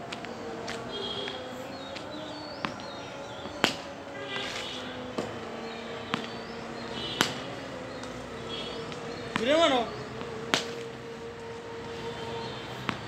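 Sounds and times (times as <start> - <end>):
ball bouncing on concrete: 2.0 - 5.4, 6.1 - 6.4, 7.1 - 8.2, 8.9 - 9.6, 10.2 - 10.9
cricket bat striking ball: 3.6 - 3.9, 6.1 - 7.6.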